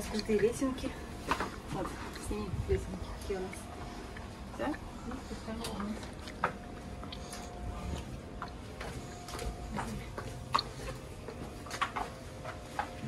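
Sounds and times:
faint steady hum: 0.0 - 13.0
footsteps going down stairs: 8.0 - 13.0.

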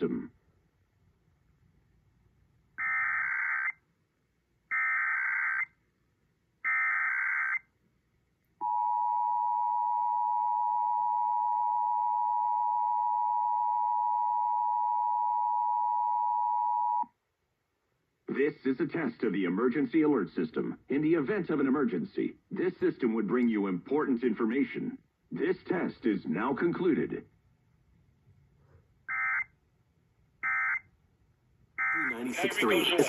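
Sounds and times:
digital data bursts: 31.8 - 33.0.

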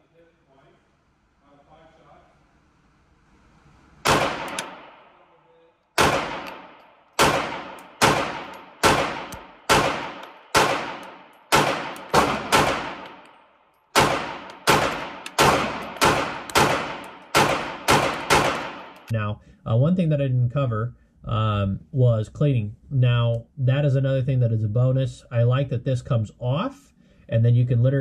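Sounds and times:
pistol shots echoing indoors: 4.0 - 19.1.

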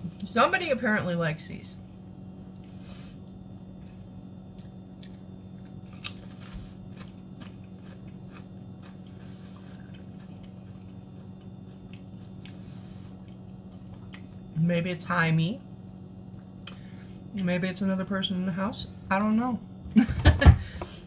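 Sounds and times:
steady low hum: 0.0 - 21.0
crisp being chewed with crunches: 3.7 - 14.6.

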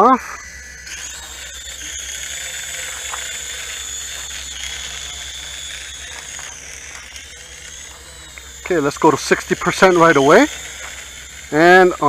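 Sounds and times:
toy drone propeller whine: 0.0 - 12.0.

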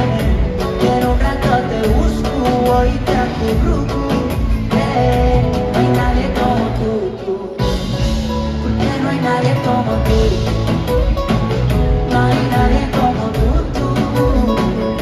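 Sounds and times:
drums steady beat: 0.0 - 15.0
live pop band in arena: 0.0 - 15.0
person singing: 0.0 - 15.0.

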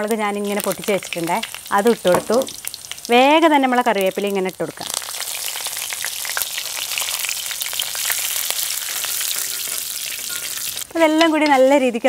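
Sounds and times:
curry leaves spitting in hot oil: 0.0 - 12.0
spoon stirring: 8.0 - 12.0.

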